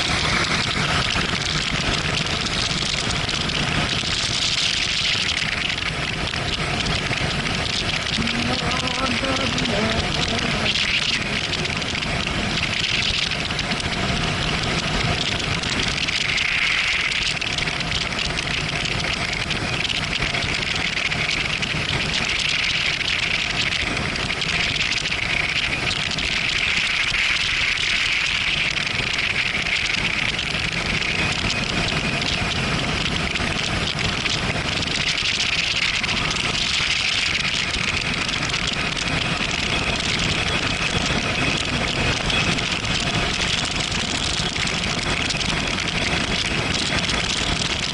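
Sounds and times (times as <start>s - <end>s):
wind and road noise: 0.0s - 47.9s
motorcycle engine cruising: 4.9s - 15.9s.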